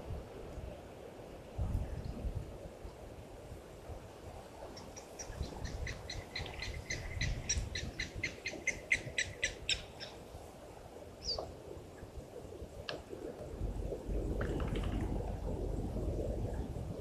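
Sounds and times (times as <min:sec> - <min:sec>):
low background rumble: 0:11.0 - 0:17.0.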